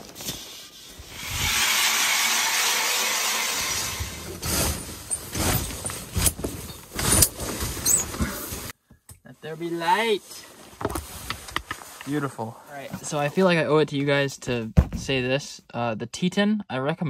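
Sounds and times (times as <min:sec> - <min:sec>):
nylon fabric rasping: 0:00.5 - 0:08.7
knocks of fabric and poles: 0:03.6 - 0:08.5.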